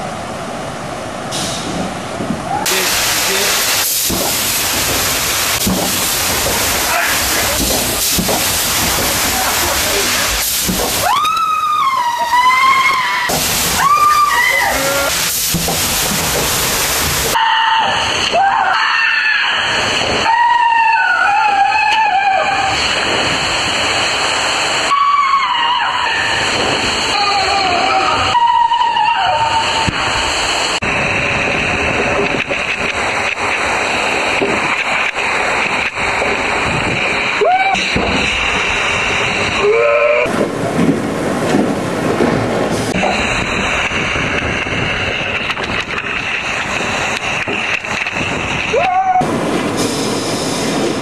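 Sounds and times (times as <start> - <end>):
water rushing through slide tube: 1.3 - 51.0
person screaming: 11.0 - 15.2, 37.4 - 37.8, 48.7 - 49.3.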